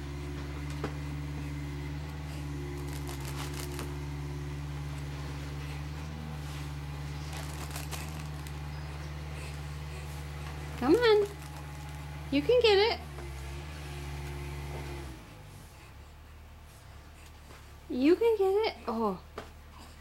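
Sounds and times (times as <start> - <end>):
low hum: 0.0 - 19.9
foil balloon crinkling: 2.6 - 4.3, 6.9 - 8.9, 10.2 - 12.2.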